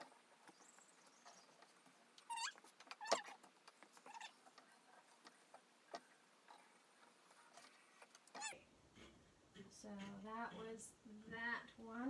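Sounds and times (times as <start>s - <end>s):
short squeaks: 2.2s - 3.4s, 4.0s - 4.4s.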